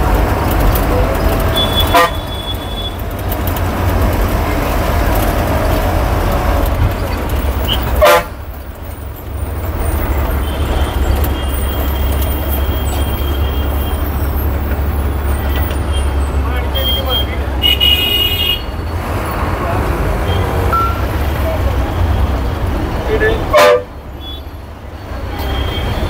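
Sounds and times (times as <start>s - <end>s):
bus engine drone: 0.0s - 26.0s
traffic horns tooting: 0.9s - 3.3s, 6.5s - 19.1s, 20.2s - 26.0s.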